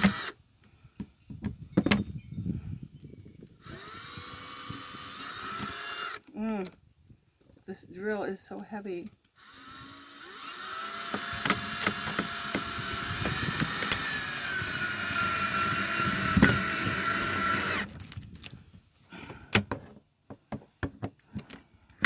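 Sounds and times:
cordless drill whining: 0.0s - 0.4s, 3.5s - 6.3s, 9.3s - 18.2s.

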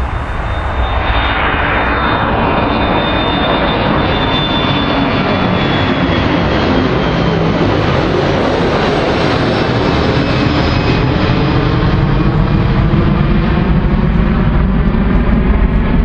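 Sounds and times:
faint high whine: 0.0s - 6.2s
jet engine roar: 0.0s - 16.0s.

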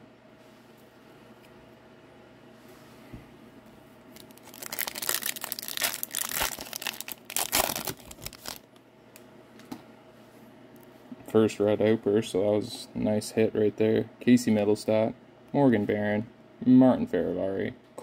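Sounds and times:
wrapper crinkling and tearing: 4.1s - 8.8s.

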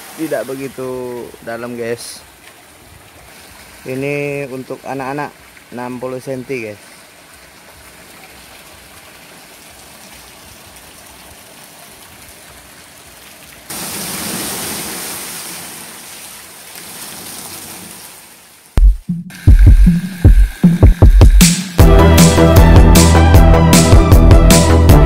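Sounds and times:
water rushing into pools: 0.0s - 20.6s
loud music with bass beat: 18.8s - 25.0s.

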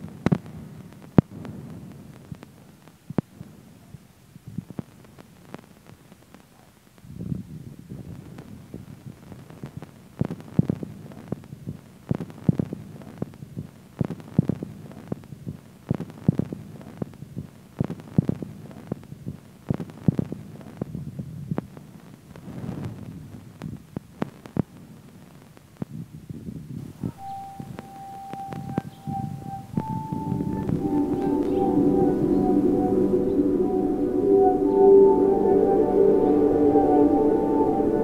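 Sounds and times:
low steady hum: 26.9s - 38.0s
experimental electronic music: 27.0s - 38.0s.

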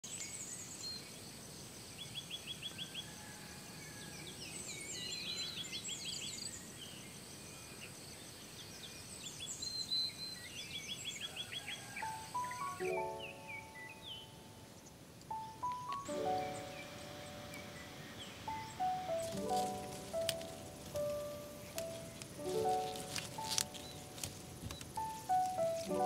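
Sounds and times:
songbirds singing: 0.0s - 26.0s
quick evenly spaced chirps: 12.0s - 26.0s.

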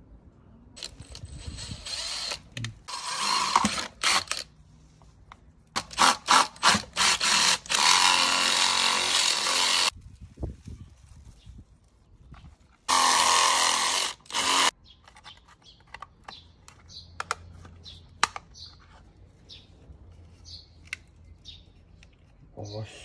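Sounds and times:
power tool cutting metal: 5.9s - 9.9s, 12.9s - 14.7s
plastic clicks and taps: 15.0s - 18.5s.

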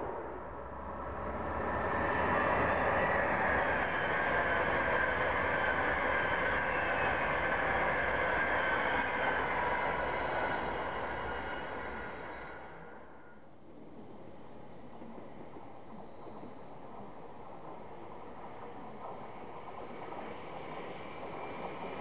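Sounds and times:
express train passing: 0.0s - 13.4s, 18.5s - 22.0s.

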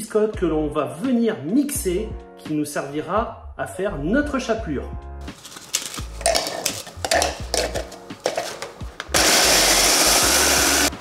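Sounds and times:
electric mini chopper grinding: 9.1s - 11.0s.

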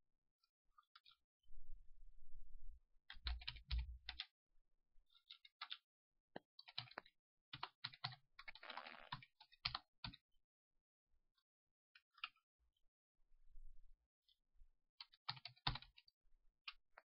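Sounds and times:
typing on computer keyboard: 3.1s - 4.3s, 5.2s - 5.8s, 6.6s - 10.2s, 15.0s - 16.0s.

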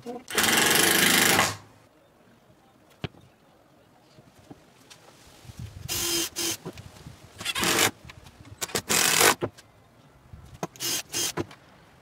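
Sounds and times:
cordless drill driving screws: 0.3s - 1.6s, 5.9s - 6.6s, 7.4s - 7.9s, 8.6s - 9.4s, 10.8s - 11.4s.

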